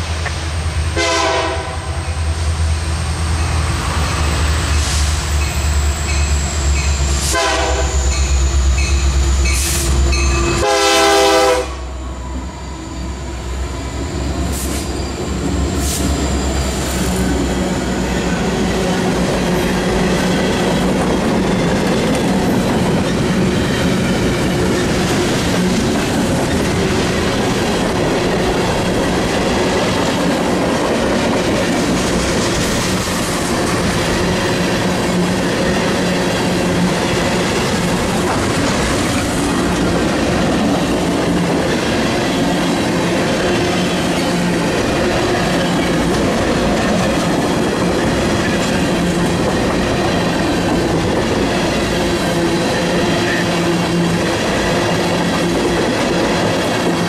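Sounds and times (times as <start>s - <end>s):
train horn blasts: 1.0s - 2.0s, 7.2s - 8.5s, 9.6s - 12.0s.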